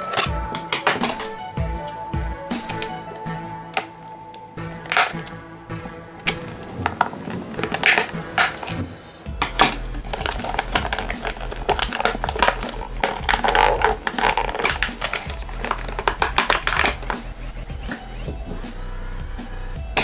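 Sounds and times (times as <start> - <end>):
background music: 0.0 - 20.0
plastic packaging crinkling: 10.1 - 17.2.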